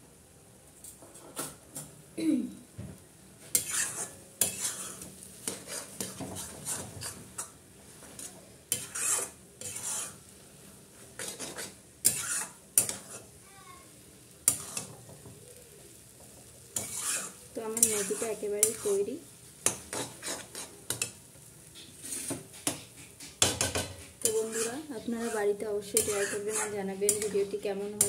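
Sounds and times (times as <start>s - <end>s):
steel spatula scraping metal pan: 3.5s - 7.5s, 8.1s - 10.3s, 11.1s - 13.3s, 14.4s - 15.0s, 16.7s - 21.2s, 21.8s - 28.0s.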